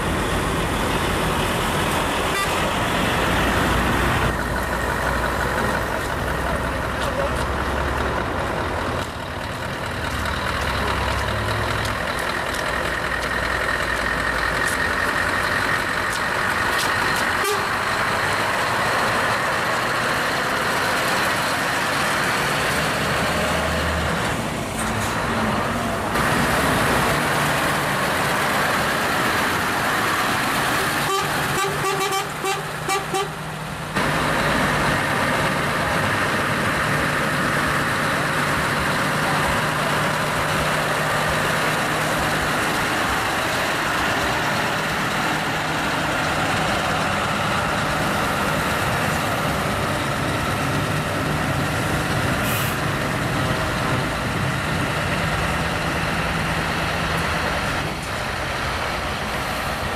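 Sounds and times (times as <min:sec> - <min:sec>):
heavy trucks driving past: 0:00.0 - 0:59.9
air horn toots: 0:02.3 - 0:02.7, 0:17.4 - 0:17.7, 0:31.0 - 0:33.4.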